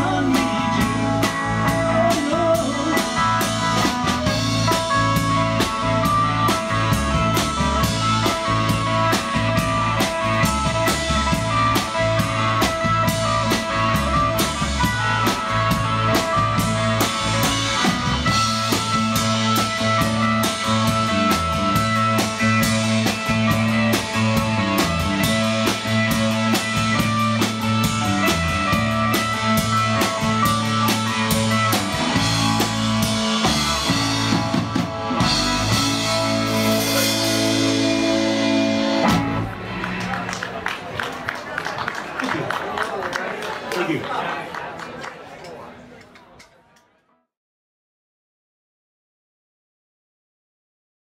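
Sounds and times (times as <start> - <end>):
drum kit with cymbals: 0.0 - 39.5
electric guitars: 0.0 - 43.6.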